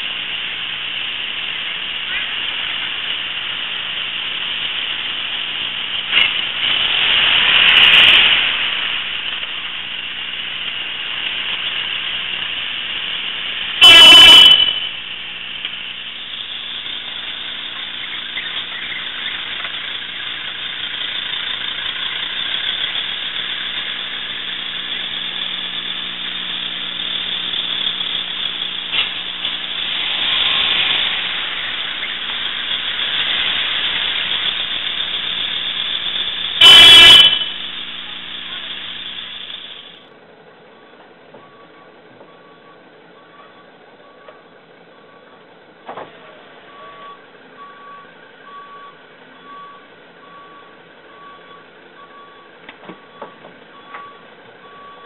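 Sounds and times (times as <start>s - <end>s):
recorder hiss and hum: 0.0s - 54.7s
vehicles passing: 0.0s - 55.0s
car horn honking: 13.8s - 15.1s, 36.5s - 39.0s.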